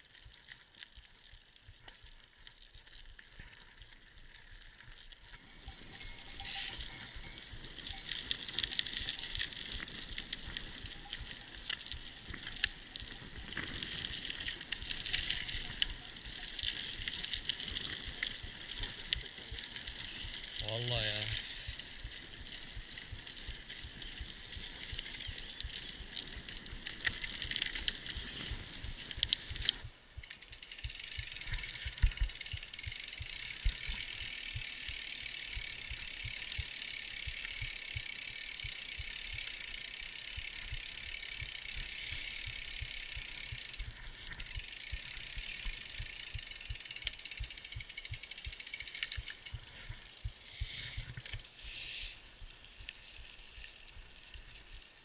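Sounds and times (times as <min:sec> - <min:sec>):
bike knocking and rattling: 0:04.8 - 0:51.4
tyres hissing on gravel: 0:05.4 - 0:24.5, 0:26.7 - 0:29.6, 0:30.4 - 0:47.1, 0:49.6 - 0:52.4.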